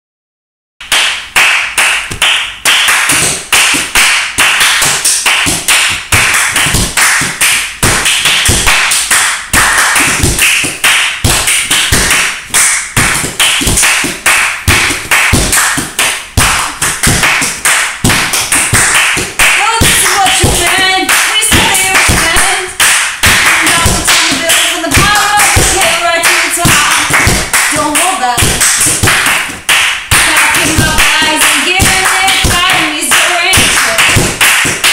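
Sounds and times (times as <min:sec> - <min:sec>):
sharp hand claps and taps: 0:00.8 - 0:34.9
palms slapping couch cushions: 0:09.5 - 0:20.8.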